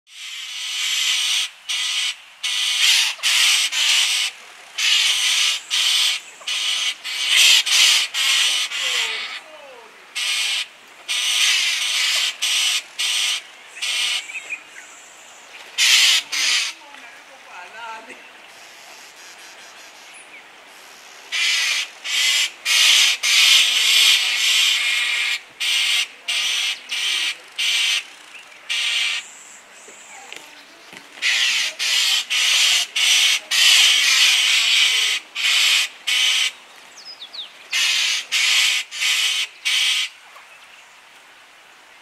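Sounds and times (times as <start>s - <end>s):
harsh buzzy animal calls: 0.1s - 9.5s, 10.2s - 14.4s, 15.8s - 16.8s, 18.5s - 29.5s, 31.2s - 36.6s, 37.7s - 40.2s.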